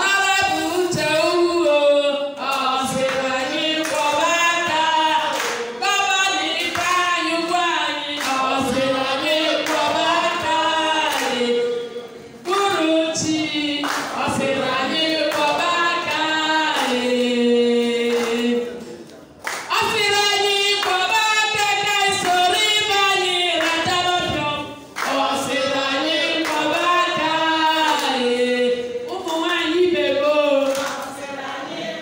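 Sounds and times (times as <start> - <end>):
group singing without instruments: 0.0 - 19.0, 19.9 - 32.0
hand-clapping: 2.4 - 7.1, 8.1 - 11.5, 13.7 - 17.4, 18.0 - 20.0, 22.1 - 28.2, 30.6 - 31.2.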